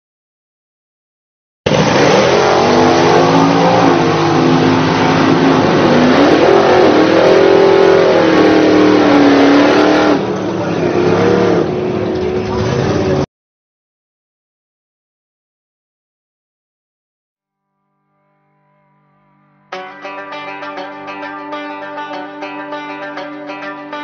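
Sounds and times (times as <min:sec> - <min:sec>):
drag racing car accelerating: 0:01.7 - 0:13.2.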